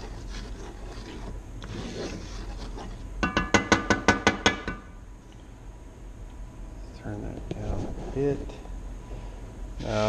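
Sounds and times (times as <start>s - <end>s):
wooden spatula tapping iron skillet: 3.2s - 4.9s.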